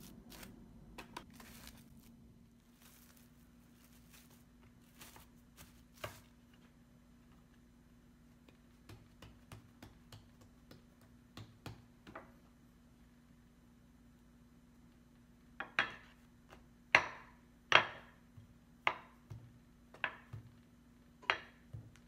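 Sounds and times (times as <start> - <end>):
plastic cling film crinkling: 0.0 - 6.6
hands patting dough: 0.0 - 12.8, 16.0 - 22.0
low steady hum: 0.0 - 22.0.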